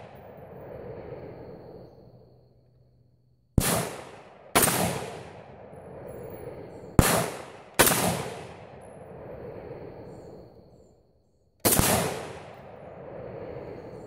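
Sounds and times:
rifle shots with echo: 3.6s - 5.7s, 6.9s - 8.9s, 11.6s - 13.1s.

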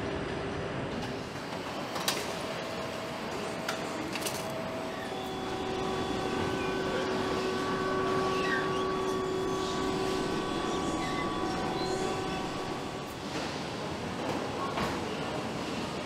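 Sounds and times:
factory background noise: 0.0s - 16.0s
crane electric motor whine: 1.8s - 13.7s.

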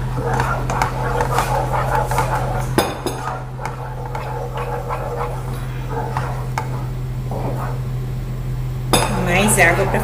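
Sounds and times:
wooden spoon stirring syrup: 0.0s - 7.9s
steady low hum: 0.0s - 10.0s.

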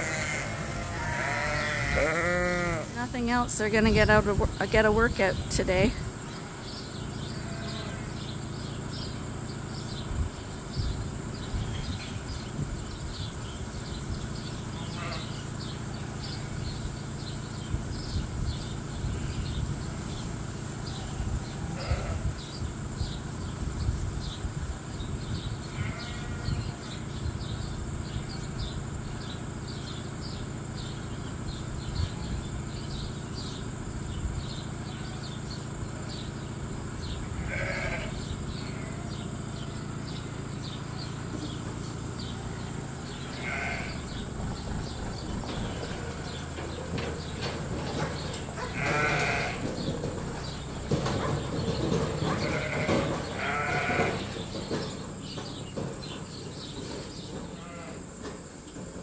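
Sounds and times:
sheep bleating: 0.0s - 3.0s, 7.2s - 8.3s, 14.8s - 15.4s, 21.7s - 22.3s, 25.6s - 26.9s, 37.3s - 39.2s, 42.6s - 44.2s, 48.6s - 49.7s, 52.2s - 54.4s, 57.5s - 58.1s.

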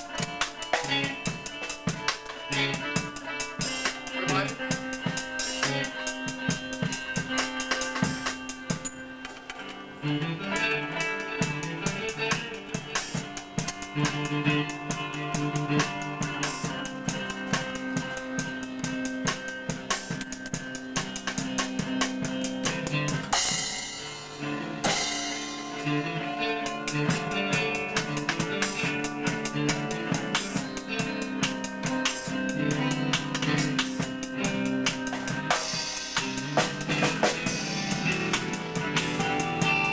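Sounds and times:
electric bass: 0.0s - 9.2s, 9.8s - 39.9s
drum kit beat: 0.0s - 39.9s
electric guitar: 0.0s - 39.9s.

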